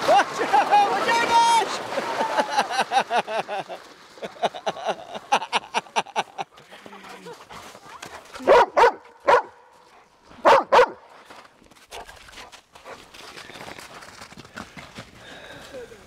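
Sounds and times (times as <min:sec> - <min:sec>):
dog barking: 0:08.4 - 0:09.6, 0:10.4 - 0:11.0.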